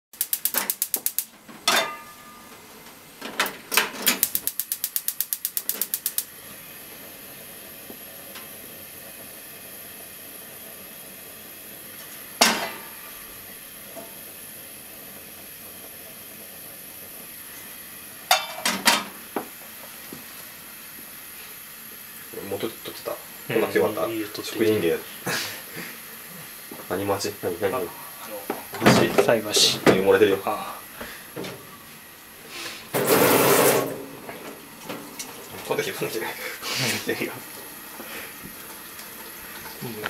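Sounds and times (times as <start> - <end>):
gas igniter clicking rapidly: 0.2 - 1.3, 4.1 - 6.3
frying pan clanking on grate: 0.2 - 2.4, 12.4 - 13.0, 18.3 - 19.2
gas burner hissing: 0.2 - 40.0.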